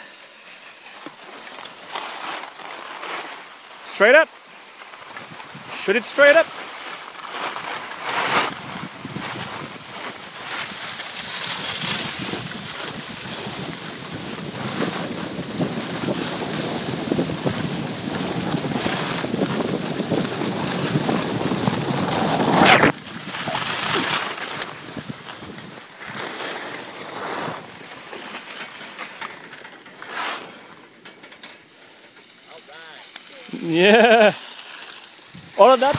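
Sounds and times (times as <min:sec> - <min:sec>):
wind buffeting microphone: 0:11.8 - 0:24.1.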